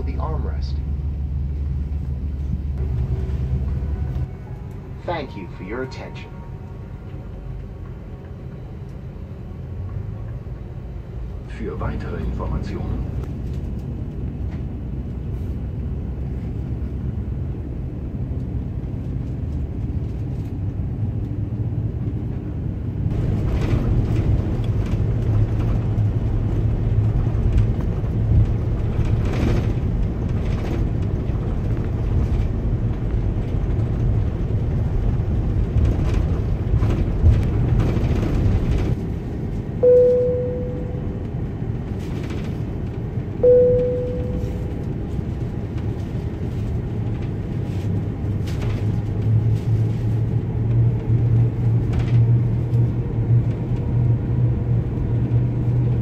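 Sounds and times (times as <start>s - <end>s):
aircraft cabin hum: 0.0s - 56.0s
cabin chime: 39.8s - 41.1s, 43.4s - 44.7s.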